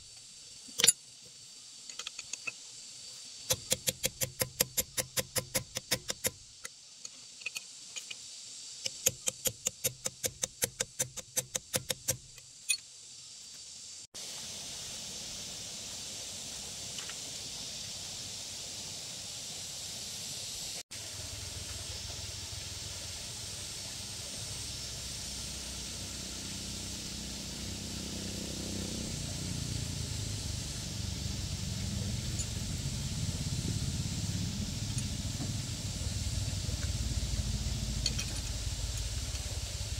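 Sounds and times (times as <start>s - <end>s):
steady hiss: 0.0s - 39.9s
low rumble: 27.0s - 39.9s.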